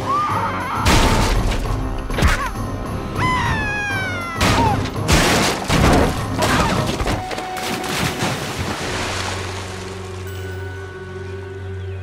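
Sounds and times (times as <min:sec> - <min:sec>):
dramatic action music: 0:00.0 - 0:07.4
splintering wood crashes: 0:00.9 - 0:02.4, 0:04.4 - 0:09.6.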